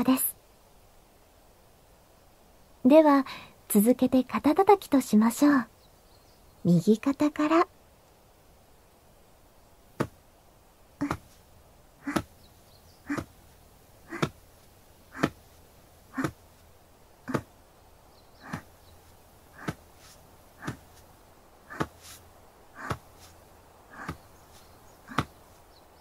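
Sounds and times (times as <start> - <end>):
hand tapping a shoulder: 10.0 - 10.2, 11.0 - 11.4, 12.0 - 12.3, 14.1 - 14.4, 15.1 - 15.4, 16.2 - 16.4, 17.3 - 17.5, 19.6 - 21.0, 21.7 - 22.2, 22.8 - 23.3, 25.1 - 25.4.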